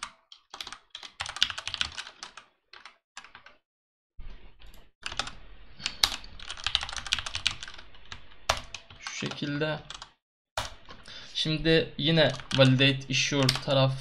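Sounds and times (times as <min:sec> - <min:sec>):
typing on computer keyboard: 0:00.0 - 0:03.6, 0:05.0 - 0:10.8, 0:12.3 - 0:13.7.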